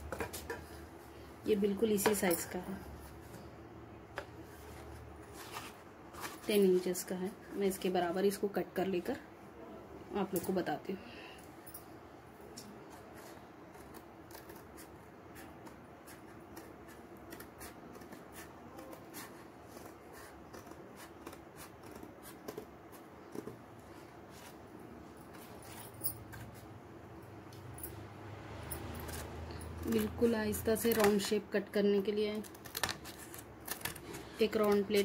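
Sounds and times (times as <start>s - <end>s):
scissors cutting cardboard: 12.7s - 24.6s, 28.8s - 31.3s, 32.2s - 35.0s.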